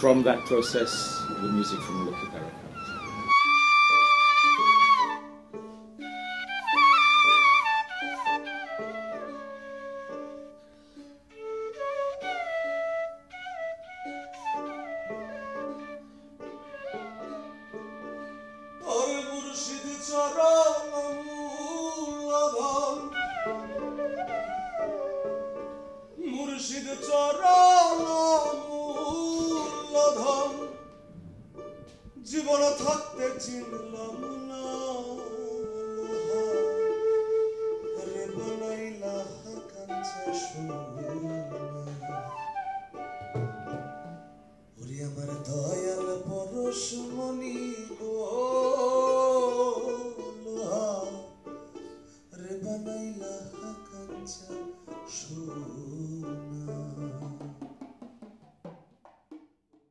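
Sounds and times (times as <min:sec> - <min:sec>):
live band music: 0:00.0 - 0:26.3, 0:27.1 - 0:44.8, 0:53.6 - 0:58.8
instrumental accompaniment: 0:00.0 - 0:59.9
man singing: 0:18.8 - 0:24.0, 0:26.2 - 0:30.9, 0:32.2 - 0:42.6, 0:44.8 - 0:51.6, 0:52.3 - 0:57.8.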